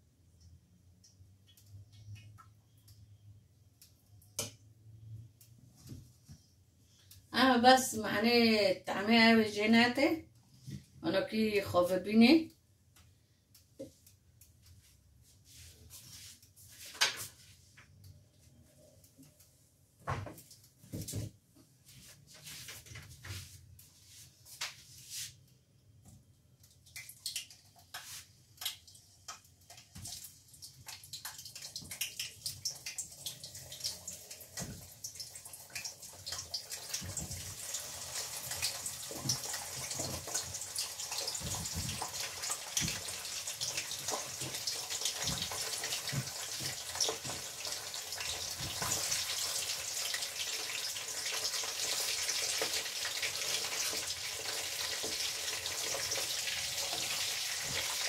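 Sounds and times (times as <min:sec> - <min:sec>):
vegetables sizzling in hot oil: 0:35.1 - 0:58.0.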